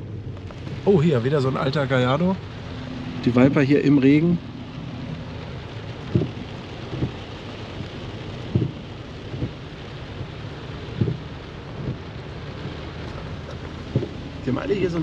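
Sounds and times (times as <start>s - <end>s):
steady rain falling: 0.0s - 15.0s
dull thumps on microphone: 6.1s - 7.2s, 8.5s - 9.6s, 11.0s - 11.2s, 13.5s - 14.2s.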